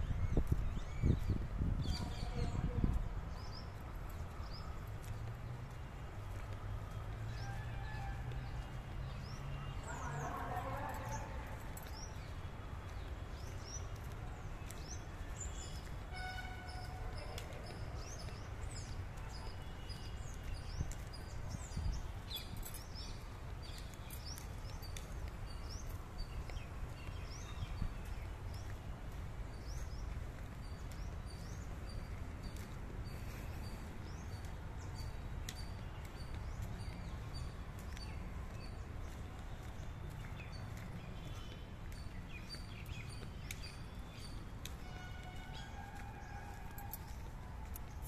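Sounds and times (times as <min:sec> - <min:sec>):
birds chirping: 0:00.0 - 0:48.0.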